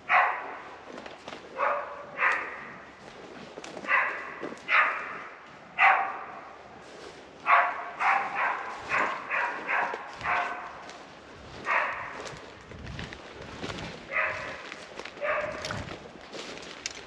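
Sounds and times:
dog barking: 0.0s - 0.7s, 1.5s - 2.8s, 3.8s - 6.5s, 7.4s - 10.9s, 11.6s - 12.4s, 14.1s - 15.8s.

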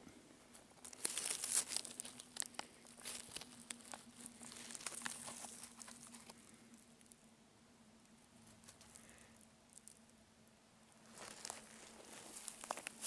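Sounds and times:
leaves and twigs crackling: 0.5s - 7.2s, 11.0s - 13.0s.

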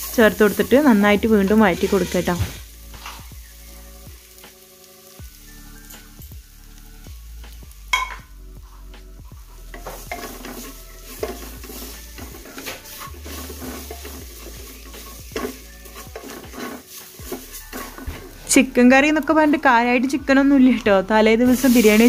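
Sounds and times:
onions sizzling in oil: 0.0s - 22.0s
wooden spatula scraping pot: 0.4s - 3.2s, 9.7s - 18.5s.

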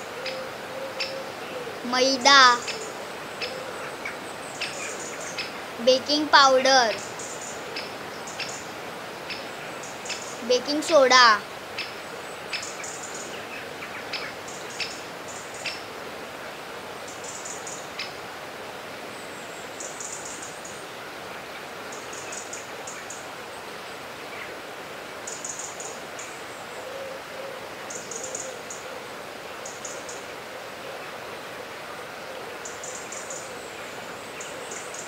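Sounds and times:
steady outdoor hiss: 0.0s - 35.0s
birds chirping: 0.2s - 13.3s.

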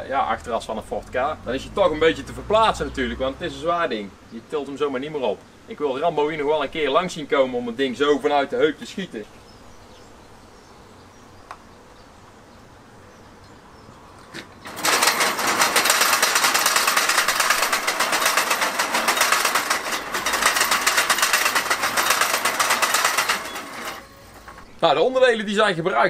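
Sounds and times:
metallic clicking and rattling: 14.4s - 24.7s.

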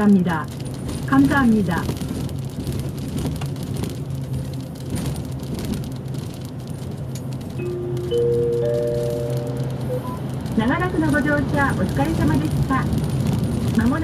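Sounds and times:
bus engine drone and road noise: 0.0s - 14.0s
rising three-note chime: 7.6s - 10.2s.

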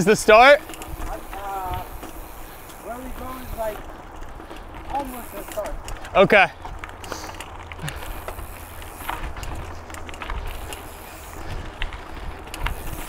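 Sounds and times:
wind rumble on microphone: 0.0s - 4.9s, 7.6s - 13.0s
bike clicks and rattles: 0.0s - 13.0s
bike tyre noise: 0.0s - 13.0s.

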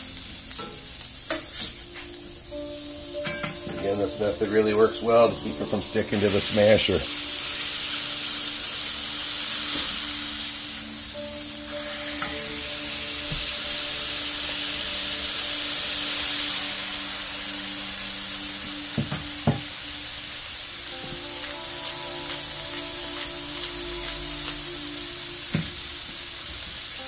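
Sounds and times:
burger patties sizzling: 0.0s - 27.0s.

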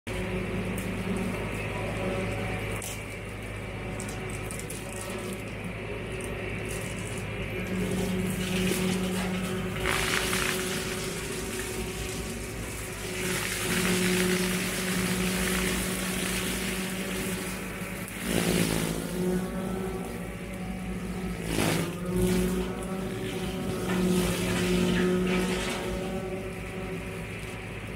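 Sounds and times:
tractor diesel engine running: 0.0s - 27.9s
brush cutter shredding brush: 6.3s - 27.9s.

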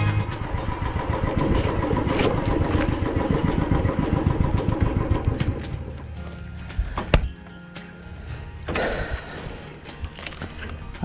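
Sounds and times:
motorcycle engine running: 0.0s - 6.5s.

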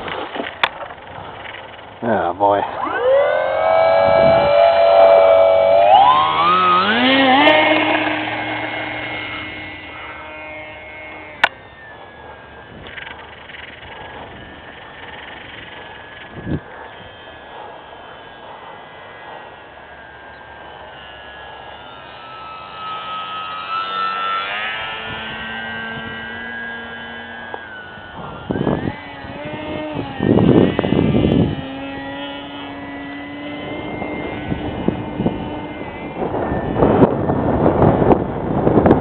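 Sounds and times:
electric model plane motor whining: 0.0s - 39.0s
wind noise on microphone: 2.8s - 11.9s, 12.5s - 17.4s, 23.7s - 39.0s.

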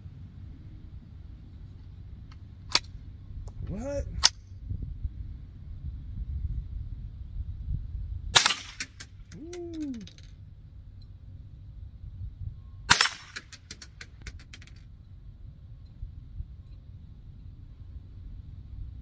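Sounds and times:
rifle gunshots with echoes: 8.4s - 9.1s, 12.9s - 13.9s.

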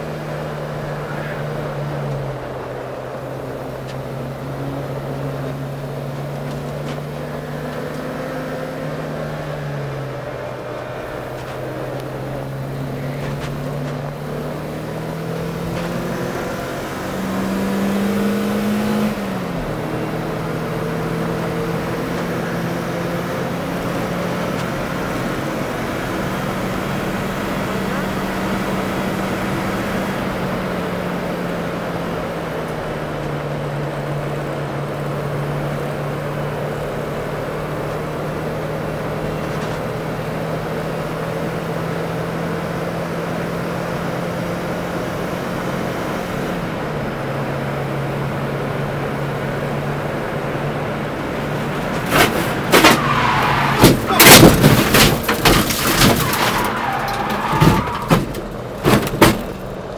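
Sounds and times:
car engine running: 0.0s - 59.9s
car crash bangs and crunches: 51.5s - 59.9s.

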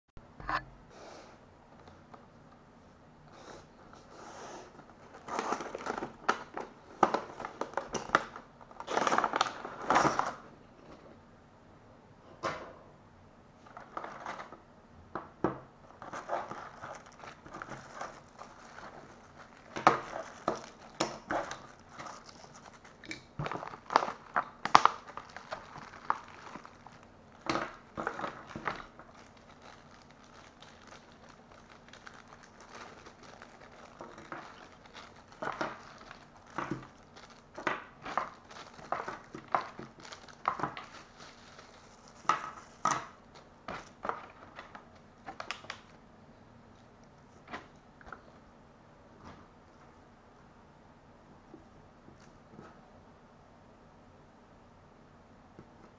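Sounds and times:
plastic bags crinkling: 5.0s - 10.4s, 15.9s - 46.0s.

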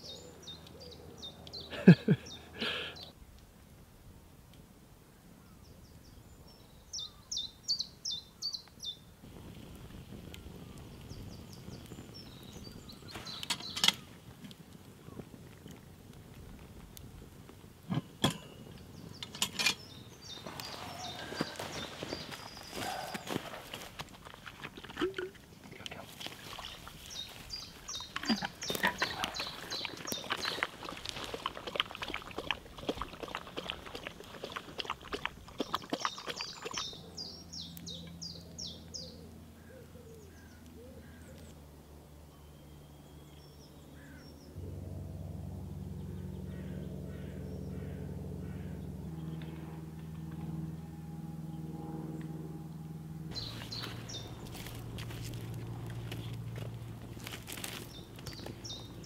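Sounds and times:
light aircraft engine drone: 9.3s - 24.1s, 36.8s - 59.0s
bird chirps: 53.3s - 54.8s.

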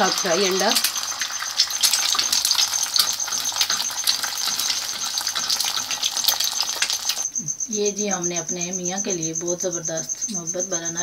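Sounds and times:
egg frying in sizzling oil: 0.0s - 7.3s.

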